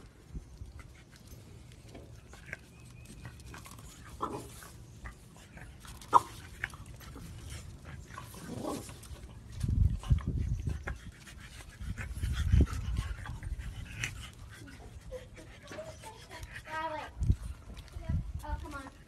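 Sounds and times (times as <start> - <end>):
dog breathing quickly: 9.6 - 19.0.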